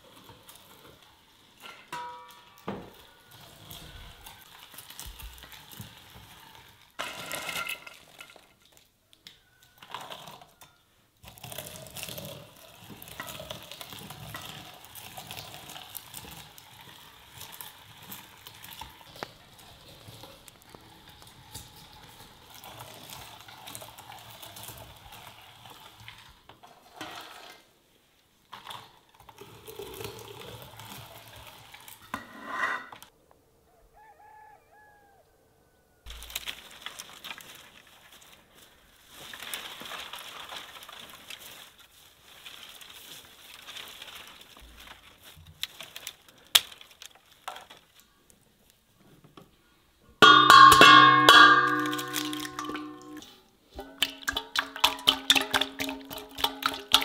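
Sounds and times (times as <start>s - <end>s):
stirring: 9.8s - 27.6s, 50.2s - 57.0s
utensils knocking against bowls: 50.2s - 53.2s, 53.8s - 57.0s.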